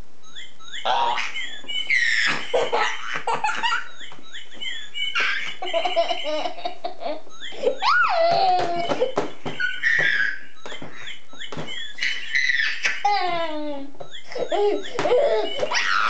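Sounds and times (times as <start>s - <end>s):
high squeaky chirps: 0.2s - 16.0s
toddler laughing: 5.2s - 10.4s, 12.0s - 16.0s.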